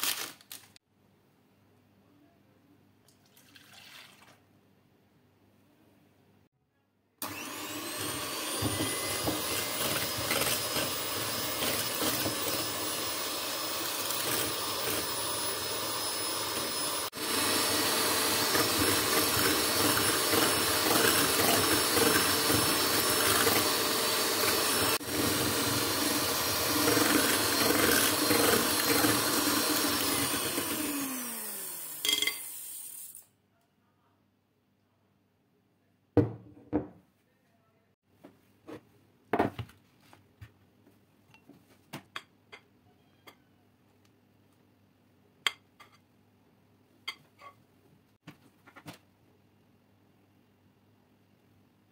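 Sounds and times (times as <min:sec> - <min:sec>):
electric hand mixer whining: 0:07.2 - 0:33.2.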